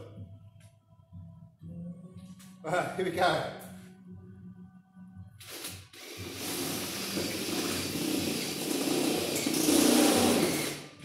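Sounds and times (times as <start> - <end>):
power drill cutting sheet metal: 5.4 - 11.0.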